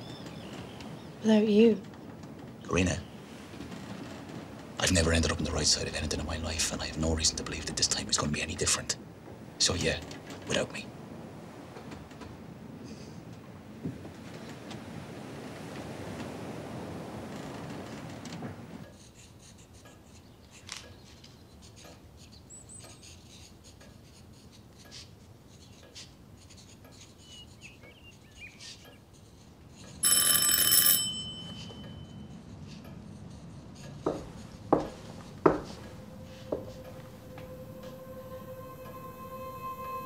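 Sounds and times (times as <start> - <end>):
doorbell ringing: 30.0 - 32.3, 35.5 - 40.0
knocks on a door: 34.1 - 35.8.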